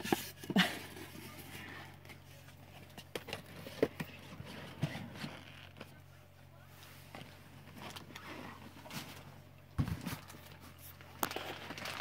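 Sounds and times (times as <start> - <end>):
faint low hum: 0.0 - 12.0.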